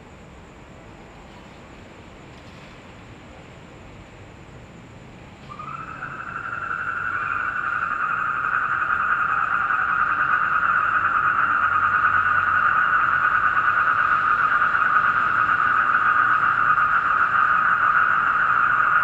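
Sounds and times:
toads trilling: 5.4 - 19.0.

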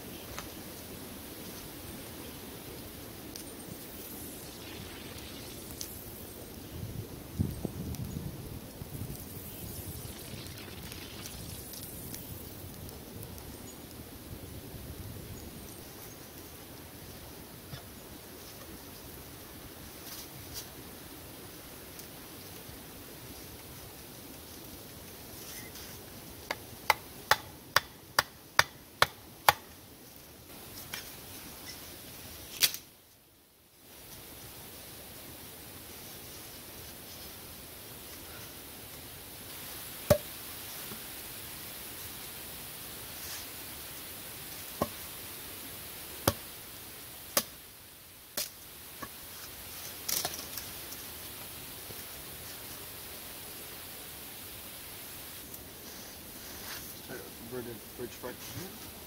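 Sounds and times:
hatchet striking wood: 26.5 - 29.7.

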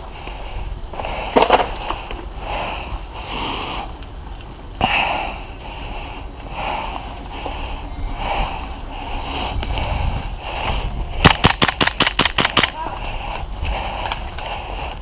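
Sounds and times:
heavy breathing: 0.0 - 11.3, 12.7 - 15.0
sharp crack: 11.2 - 12.9.

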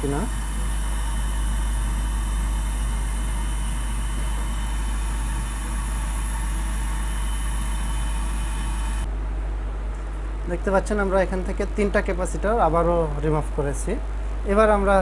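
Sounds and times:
hot air blower whirring: 0.0 - 9.1
thin high whine: 0.0 - 9.1.

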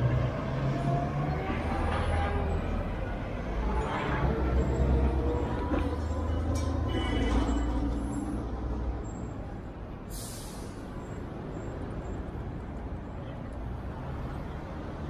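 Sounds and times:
air brakes hissing: 10.1 - 11.0.

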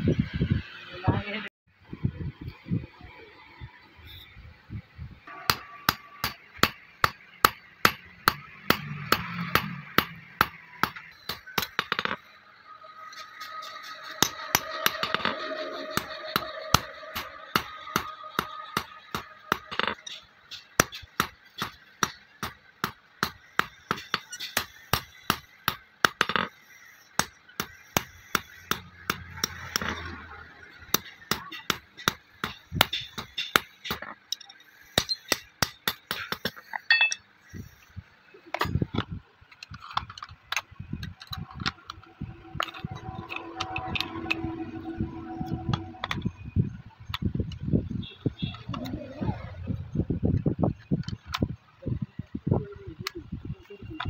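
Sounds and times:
hammer striking metal on anvil: 5.3 - 12.2, 13.4 - 26.4.

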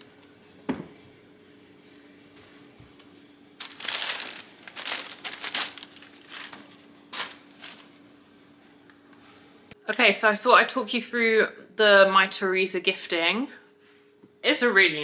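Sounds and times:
tissue paper rustling: 3.6 - 8.0.

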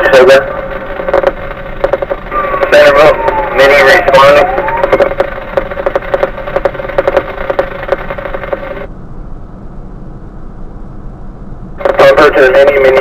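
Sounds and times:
engine idling with clatter: 0.0 - 8.9
low rumble: 0.0 - 13.0.

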